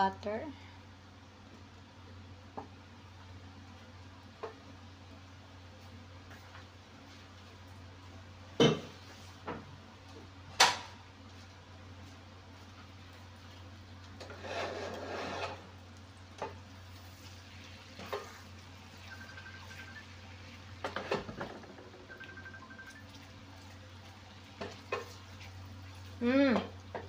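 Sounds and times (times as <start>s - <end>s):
faint sizzle: 0.0s - 27.0s
wooden spoon scraping a pan: 13.4s - 15.8s, 16.9s - 18.6s, 24.1s - 26.2s.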